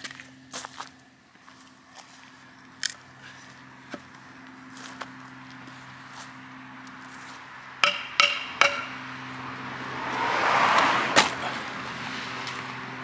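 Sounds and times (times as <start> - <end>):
sharp knocks on wooden post: 7.8 - 9.0.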